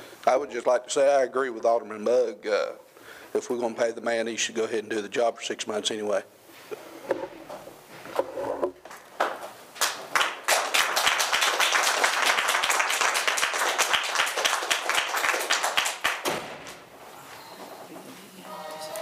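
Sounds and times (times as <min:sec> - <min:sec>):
audience applauding: 0:08.9 - 0:16.3.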